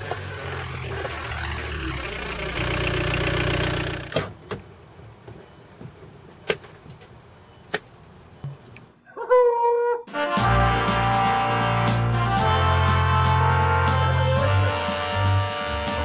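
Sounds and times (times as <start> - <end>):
car engine running: 0.0 - 4.5.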